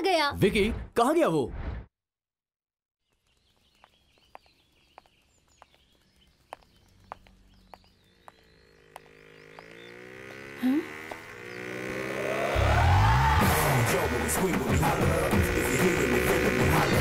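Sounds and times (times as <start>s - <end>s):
faint birdsong: 3.0s - 12.6s
heeled footsteps on pavement: 3.4s - 11.2s.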